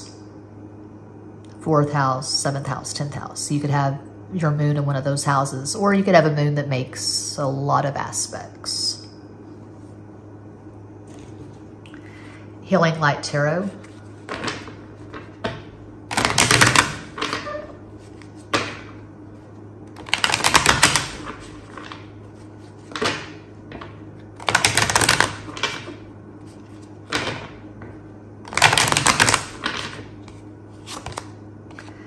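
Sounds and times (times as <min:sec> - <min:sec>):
cards being shuffled: 0:13.7 - 0:18.9, 0:19.9 - 0:27.5, 0:28.5 - 0:32.0.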